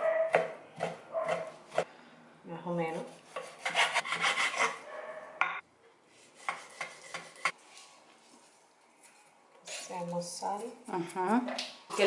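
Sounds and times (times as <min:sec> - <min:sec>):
knife sawing through pork skin: 0:03.3 - 0:04.8.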